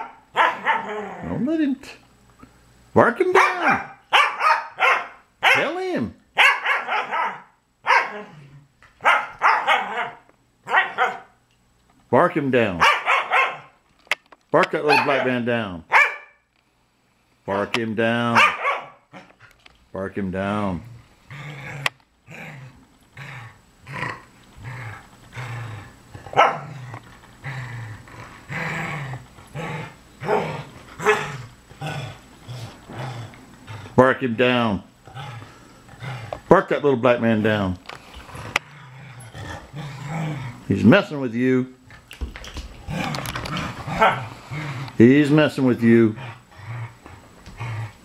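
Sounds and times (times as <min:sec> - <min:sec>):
dog barks and snarls: 0:00.0 - 0:01.4, 0:03.4 - 0:05.8, 0:06.4 - 0:08.4, 0:09.0 - 0:11.3, 0:12.8 - 0:13.8, 0:14.8 - 0:16.3, 0:18.3 - 0:19.3, 0:26.2 - 0:26.9, 0:29.5 - 0:32.2, 0:42.9 - 0:44.8
dogs barking and growling: 0:00.0 - 0:01.5, 0:03.3 - 0:11.4, 0:12.6 - 0:13.8, 0:14.6 - 0:16.4, 0:18.2 - 0:19.7, 0:20.8 - 0:34.2, 0:35.0 - 0:36.8, 0:37.9 - 0:41.3, 0:41.9 - 0:48.0.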